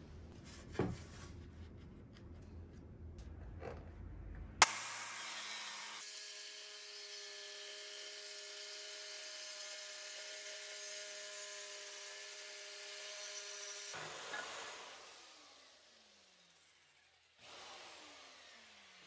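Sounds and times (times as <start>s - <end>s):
jigsaw motor whine: 4.6s - 19.0s.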